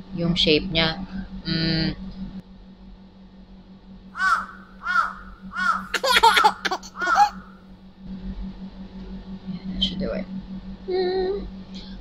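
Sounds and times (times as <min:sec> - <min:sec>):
crow cawing: 0:04.2 - 0:07.5.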